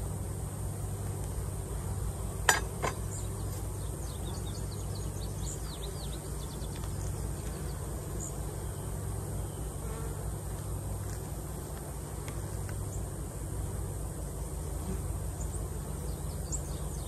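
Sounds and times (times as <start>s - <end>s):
honeybees buzzing: 0.0s - 17.0s.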